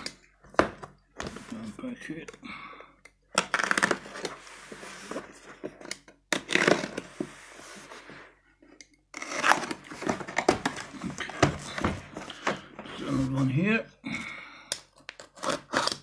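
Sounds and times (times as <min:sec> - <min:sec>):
knife slitting packing tape: 0:06.4 - 0:07.1, 0:09.1 - 0:09.9, 0:14.9 - 0:16.0.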